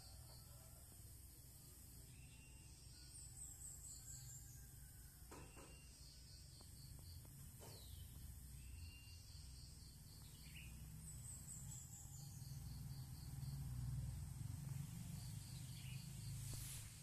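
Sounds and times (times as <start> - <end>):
low steady rumble: 7.3 - 17.0.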